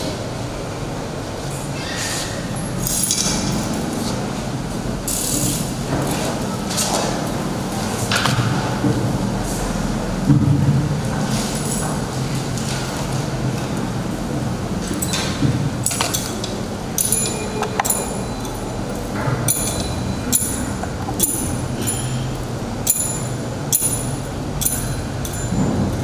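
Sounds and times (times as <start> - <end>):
low hall hum: 0.0 - 26.0
metallic chain clinks: 17.0 - 25.9.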